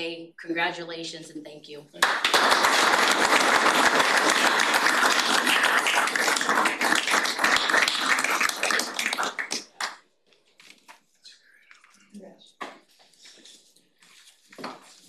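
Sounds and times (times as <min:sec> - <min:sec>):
people applauding: 0:02.0 - 0:10.0.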